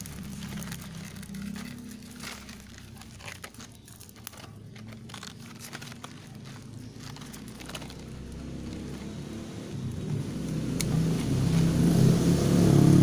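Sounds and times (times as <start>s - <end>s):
scissors snipping plastic: 0.0s - 9.0s
plastic wrapping crinkling: 0.0s - 11.8s.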